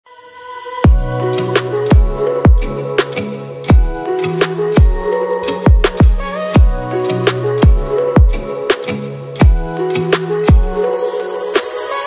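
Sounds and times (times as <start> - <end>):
deep heavy beat hits: 0.9 - 1.2, 1.9 - 2.8, 3.7 - 4.0, 5.7 - 6.9, 7.6 - 8.5.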